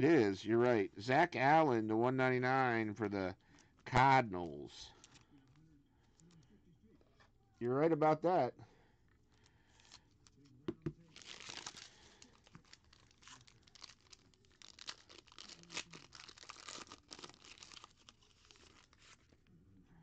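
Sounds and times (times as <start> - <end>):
foil wrapper crinkling and tearing: 11.0 - 19.5.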